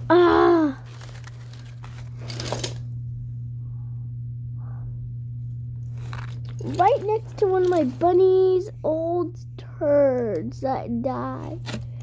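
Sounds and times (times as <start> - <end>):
steady low hum: 0.0 - 12.0
rustling handling noises: 0.7 - 2.8, 5.9 - 8.6.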